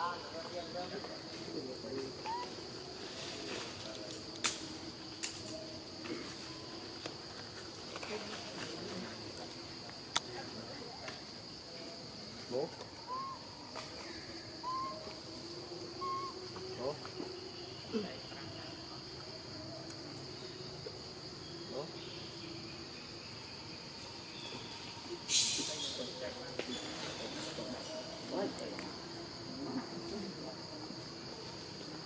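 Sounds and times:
insects droning: 0.0 - 32.0
chirping calls: 2.2 - 2.6, 13.0 - 13.6, 14.4 - 15.2, 16.0 - 16.4.

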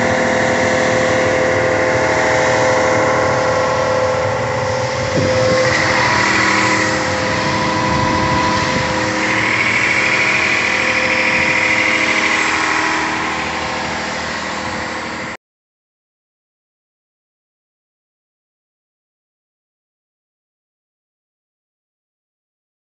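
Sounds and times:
electric pump motor hum: 0.0 - 15.4.

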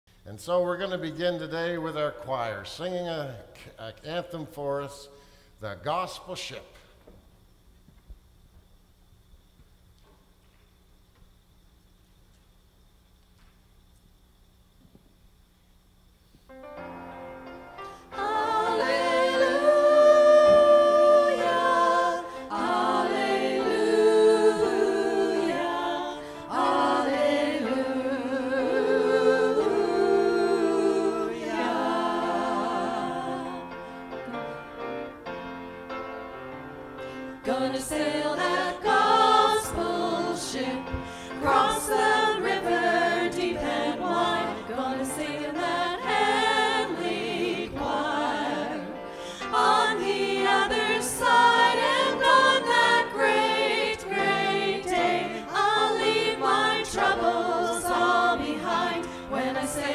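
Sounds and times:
choir singing in harmony: 17.7 - 35.3, 36.3 - 59.9.

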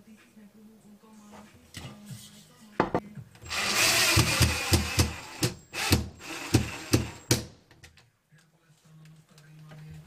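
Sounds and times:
drill motor running: 3.5 - 7.3.

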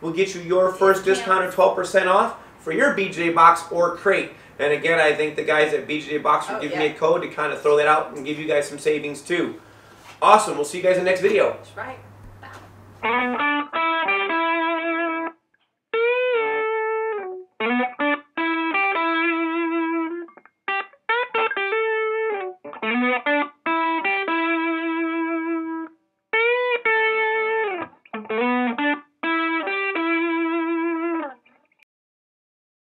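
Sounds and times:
solo electric guitar: 0.0 - 2.5, 5.2 - 8.3, 11.8 - 15.4, 16.0 - 31.8.

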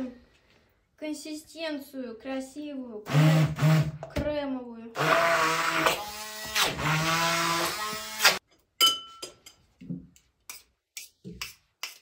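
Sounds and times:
immersion blender motor running: 3.1 - 4.0, 5.0 - 8.4.

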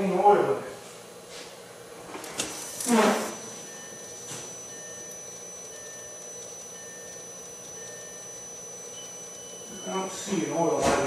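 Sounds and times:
dashboard warning chime beeping: 3.2 - 10.9.

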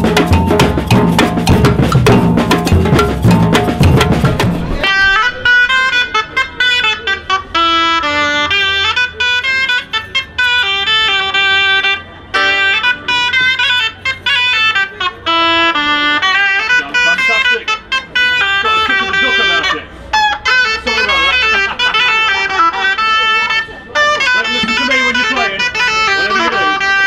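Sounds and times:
samba percussion band: 0.0 - 5.2
melodic tune: 0.0 - 5.8, 12.4 - 14.3.

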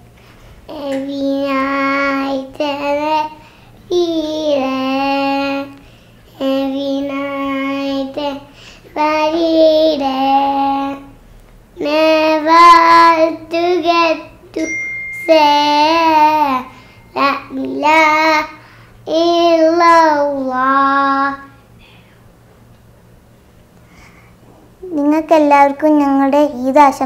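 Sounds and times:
girl singing unaccompanied: 0.7 - 11.2, 11.8 - 21.8.

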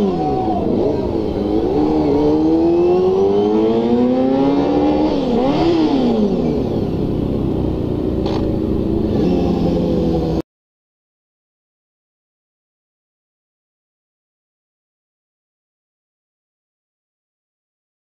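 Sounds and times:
motorcycle engine revving: 0.0 - 10.4.

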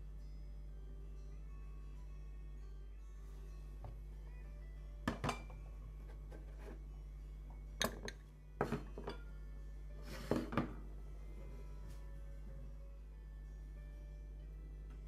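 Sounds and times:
ceramic bowls clinking: 7.8 - 9.3.

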